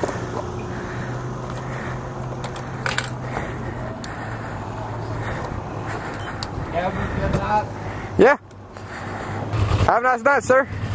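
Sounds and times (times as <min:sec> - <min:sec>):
motorcycle engine idling: 0:00.0 - 0:10.9.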